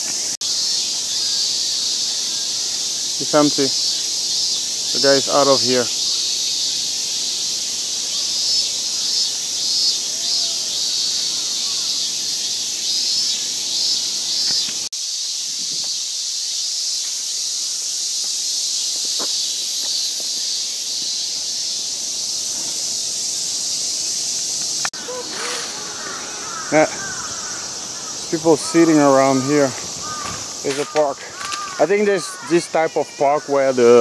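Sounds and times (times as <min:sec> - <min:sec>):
cicadas droning: 0:00.0 - 0:34.0.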